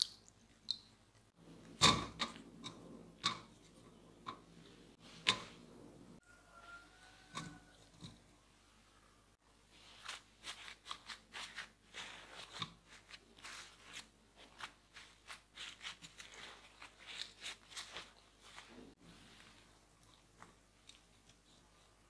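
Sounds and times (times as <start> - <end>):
paper towel crinkling: 9.7 - 19.9.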